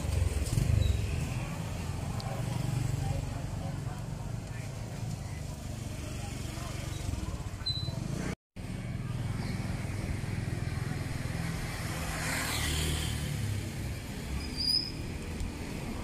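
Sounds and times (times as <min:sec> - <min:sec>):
motorbike engines passing: 0:00.0 - 0:16.0
high squeak: 0:07.6 - 0:08.0.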